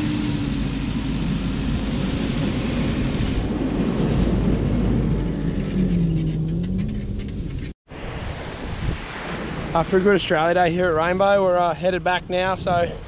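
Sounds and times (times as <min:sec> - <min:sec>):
vehicle engine hum: 0:00.0 - 0:07.8.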